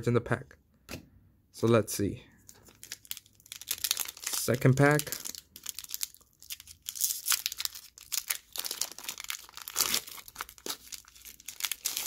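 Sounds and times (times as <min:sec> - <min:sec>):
foil wrapper crinkling and tearing: 0:02.5 - 0:12.0.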